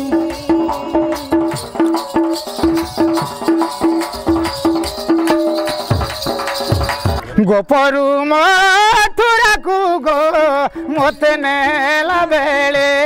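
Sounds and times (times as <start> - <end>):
deep drum beats: 0.0 - 7.4
hand drum strokes: 0.0 - 7.4.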